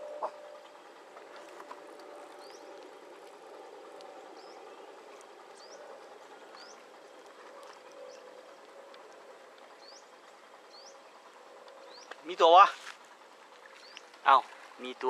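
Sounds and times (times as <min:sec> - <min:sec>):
steady background hum: 0:00.0 - 0:15.0
bird chirping: 0:04.3 - 0:08.7, 0:09.6 - 0:12.3.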